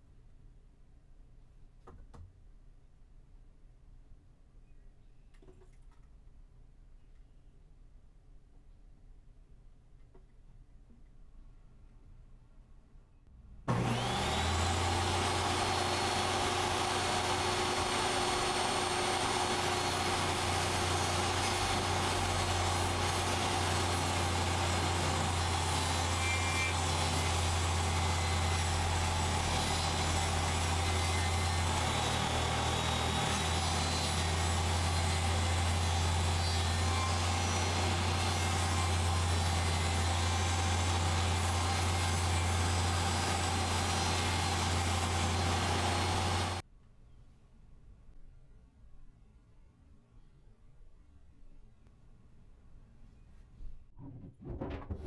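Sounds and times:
table saw cutting wood: 0:13.7 - 0:46.6.

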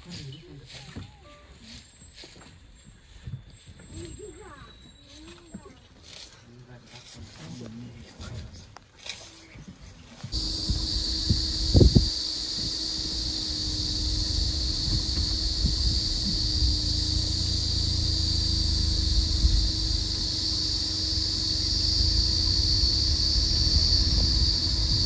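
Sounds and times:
cicadas shrilling in chorus: 0:10.3 - 0:25.0
low rumble: 0:10.4 - 0:25.0.

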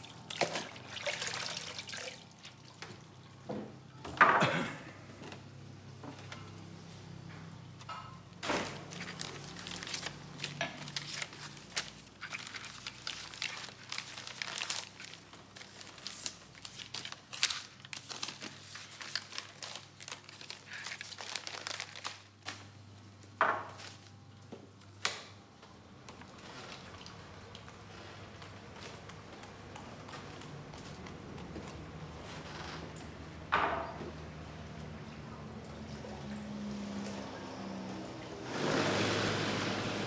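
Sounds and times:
crinkling and crackling: 0:08.4 - 0:33.2.

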